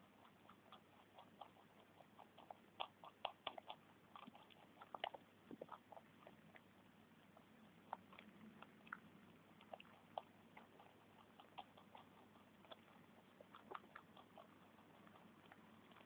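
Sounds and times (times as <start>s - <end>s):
rabbits munching: 0.0s - 16.0s.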